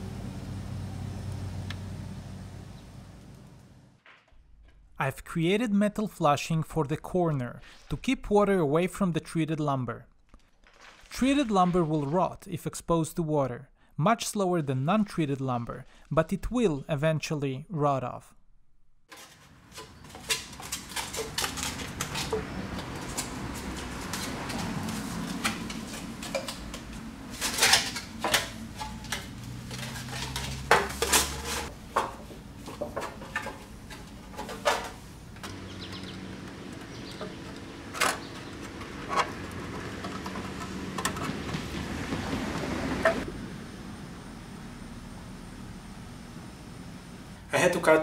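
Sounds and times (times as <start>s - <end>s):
sheet metal crinkling and clanking: 19.1s - 43.2s.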